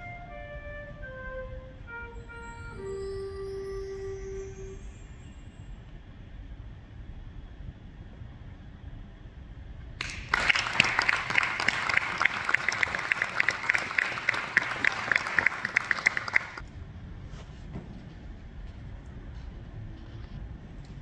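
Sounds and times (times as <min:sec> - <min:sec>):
audience applauding: 0:10.0 - 0:16.6.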